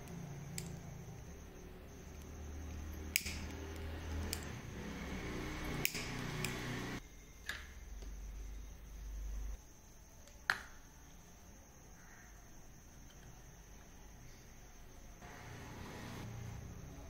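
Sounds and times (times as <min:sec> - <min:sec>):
lighter thumb wheel clicks: 0:00.0 - 0:00.9, 0:02.0 - 0:04.6, 0:05.7 - 0:06.6.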